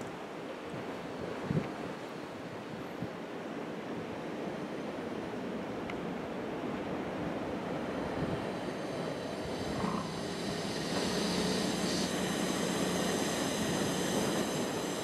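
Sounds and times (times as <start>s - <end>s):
wind: 0.0s - 15.0s
breaking surf: 6.6s - 15.0s.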